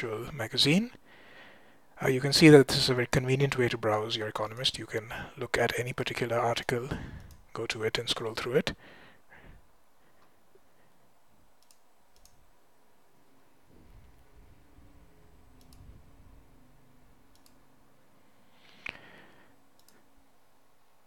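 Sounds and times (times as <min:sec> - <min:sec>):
computer mouse clicks: 0:07.2 - 0:07.4, 0:11.6 - 0:12.4, 0:15.6 - 0:15.9, 0:17.3 - 0:17.6, 0:19.8 - 0:20.0.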